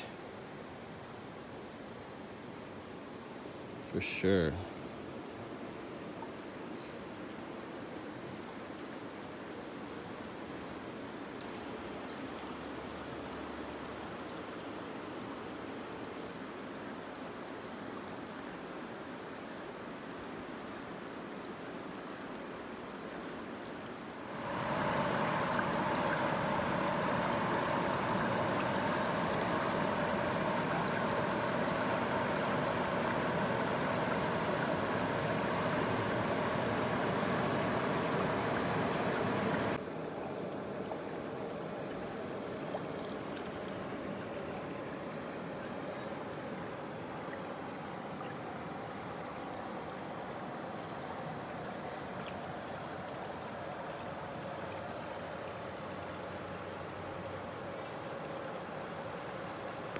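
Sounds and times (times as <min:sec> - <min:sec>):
river water rushing over rocks: 0:23.5 - 0:59.9.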